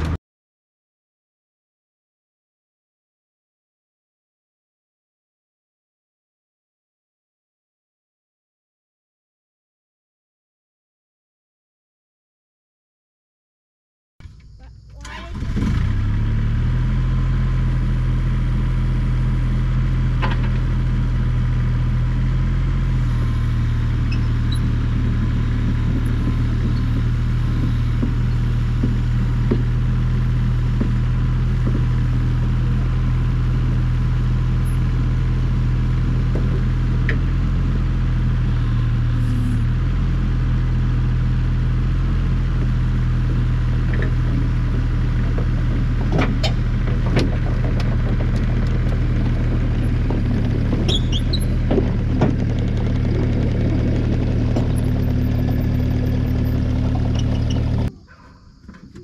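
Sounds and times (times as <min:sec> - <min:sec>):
diesel engine running: 0:14.2 - 0:59.0.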